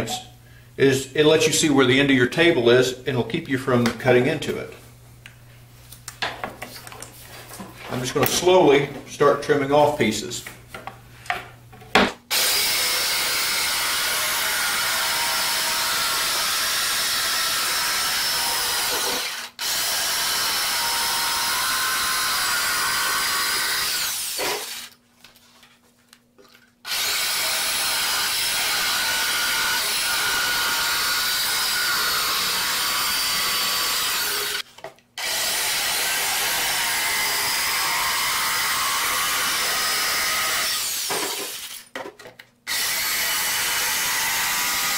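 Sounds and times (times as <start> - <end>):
jigsaw cutting wood: 12.3 - 24.9, 26.9 - 34.6, 35.2 - 41.8, 42.7 - 44.9.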